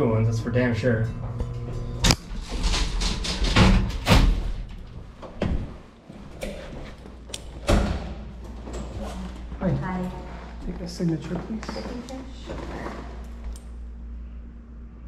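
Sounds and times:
metal clanks and knocks: 0:01.0 - 0:05.7.

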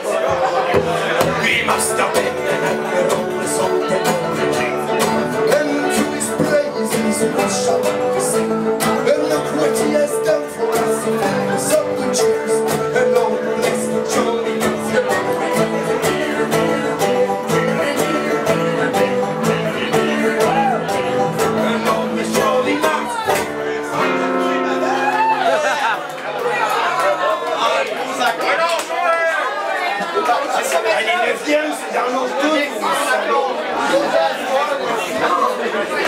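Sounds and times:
acoustic guitars strumming: 0:00.0 - 0:27.0.

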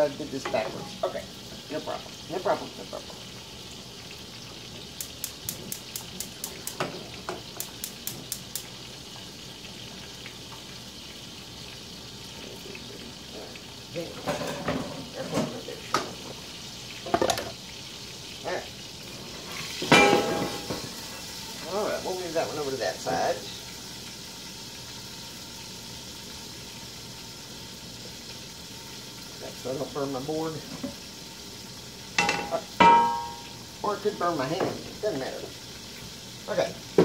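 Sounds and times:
chicken sizzling in a pan: 0:00.0 - 0:37.0
pan and lid clattering: 0:14.2 - 0:16.1, 0:17.1 - 0:17.6, 0:19.8 - 0:21.0, 0:32.2 - 0:33.5.

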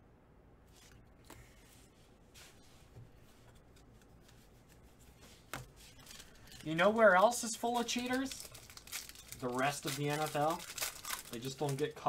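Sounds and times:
trading cards rustling and clicking: 0:03.5 - 0:12.0.

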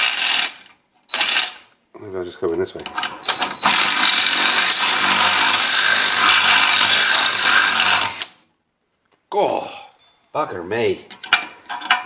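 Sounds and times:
cordless drill boring sheet metal: 0:03.6 - 0:08.4.

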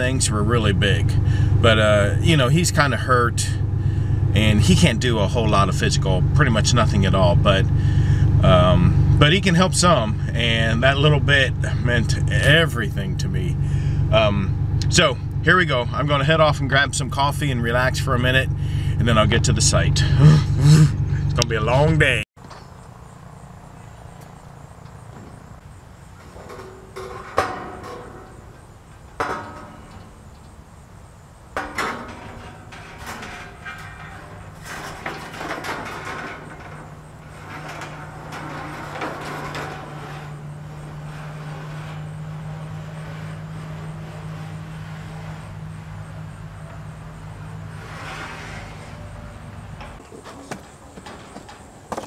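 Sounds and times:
steady low hum: 0:00.0 - 0:51.8
sheet metal knocking and rattling: 0:24.3 - 0:52.0.

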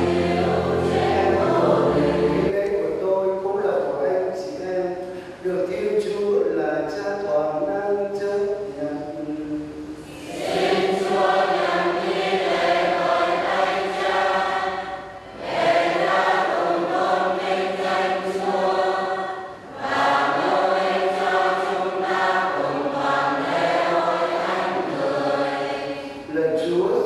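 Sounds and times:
choir singing a hymn: 0:00.0 - 0:02.6, 0:10.0 - 0:26.3.

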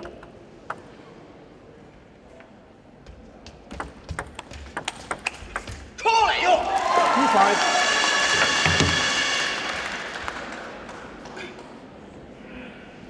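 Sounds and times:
table tennis ball clicking: 0:00.0 - 0:01.0, 0:03.7 - 0:05.9.

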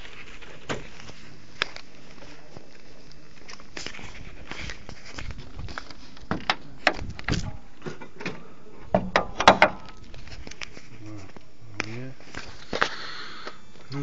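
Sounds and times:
footsteps: 0:00.0 - 0:09.1, 0:09.7 - 0:14.0
clicks and knocks: 0:06.3 - 0:10.0.

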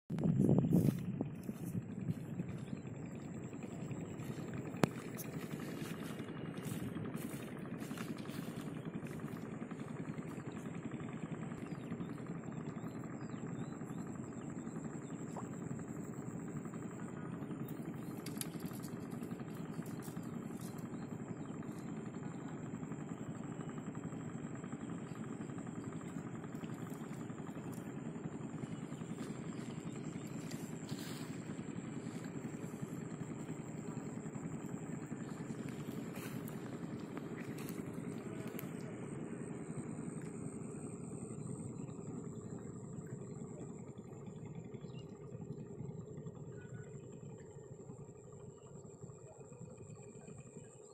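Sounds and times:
engine running: 0:00.0 - 0:50.9
motor rumbling: 0:00.0 - 0:50.9
thin high whine: 0:00.1 - 0:44.2
faint clicks: 0:18.0 - 0:20.8.

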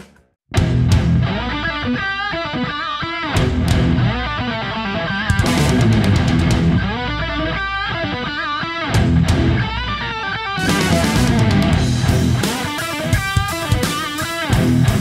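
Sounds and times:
guitar rock music: 0:00.0 - 0:15.0.

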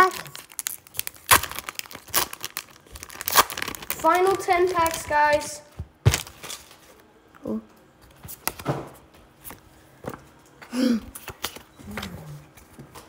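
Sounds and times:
trading cards flicking and rustling: 0:11.2 - 0:13.0.

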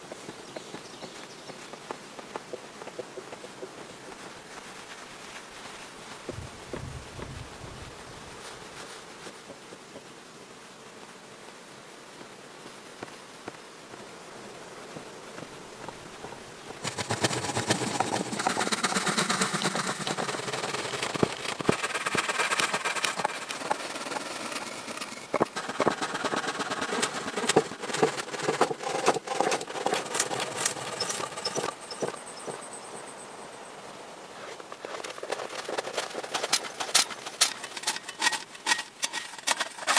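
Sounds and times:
wooden poles knocking and scraping: 0:15.8 - 0:32.6, 0:34.7 - 0:39.9.

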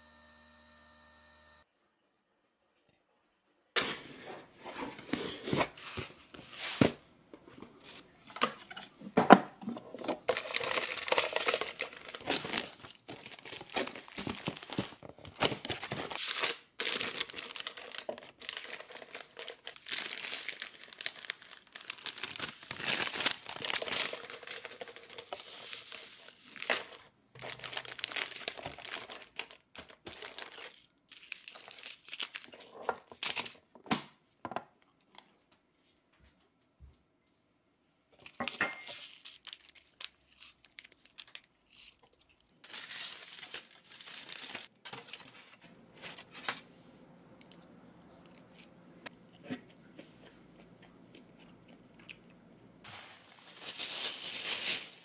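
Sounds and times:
plastic sachets crinkling: 0:10.0 - 0:33.7, 0:38.9 - 0:46.7, 0:52.8 - 0:55.0.

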